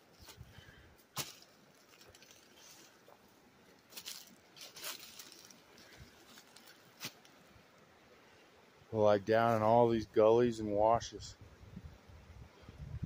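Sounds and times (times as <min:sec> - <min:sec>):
footsteps through dry brush: 0:00.0 - 0:07.4.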